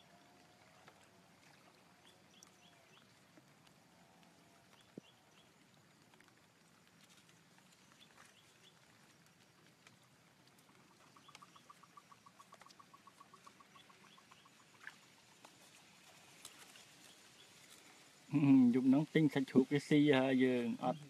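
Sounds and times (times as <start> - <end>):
water dripping and ticking: 0.0 - 21.0
small animal pulsing call: 10.6 - 16.2.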